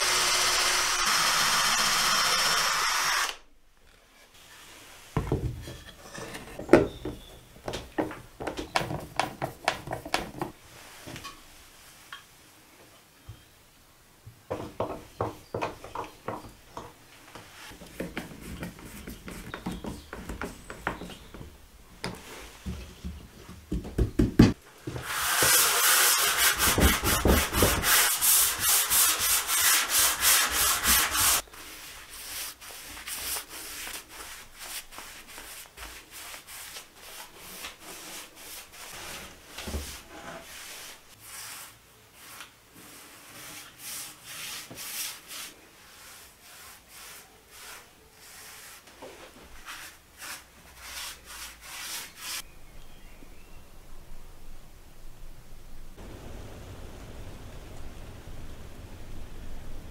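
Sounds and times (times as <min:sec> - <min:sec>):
scratchy rubbing strokes on wood: 0:25.0 - 0:48.9, 0:49.6 - 0:52.4.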